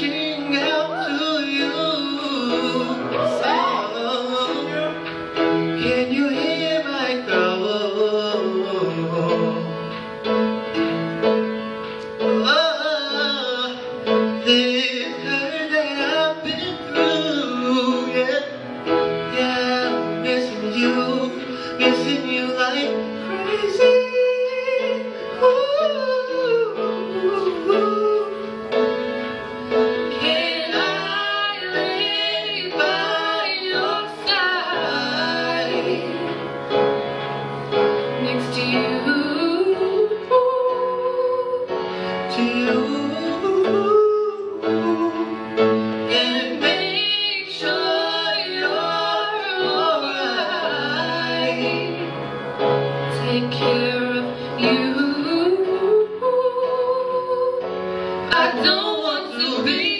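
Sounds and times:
man singing: 0:00.0 - 0:05.2, 0:05.8 - 0:09.9, 0:12.2 - 0:28.5, 0:42.3 - 0:52.1
piano: 0:00.0 - 0:59.9
woman singing: 0:38.2 - 0:41.6, 0:58.3 - 0:59.9.

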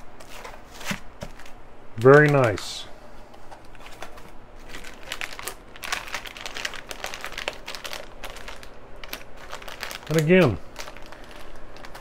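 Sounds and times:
plastic bags crinkling: 0:03.7 - 0:12.0.

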